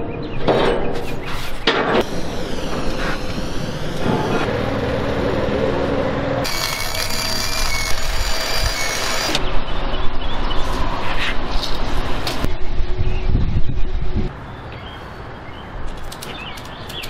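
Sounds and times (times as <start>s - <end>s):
welder arc crackling and hissing: 6.4s - 9.4s.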